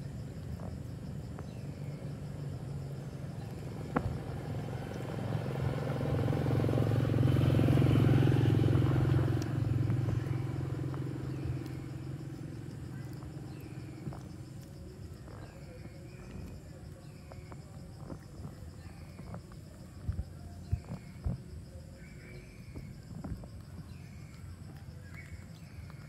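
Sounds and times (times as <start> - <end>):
vehicle engine passing by: 1.5 - 14.7.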